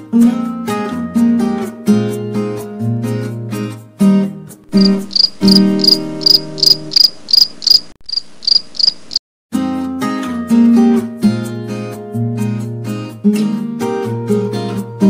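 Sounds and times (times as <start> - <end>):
acoustic guitar music: 0.0 - 7.3, 9.6 - 15.0
cricket chirping: 4.7 - 9.2.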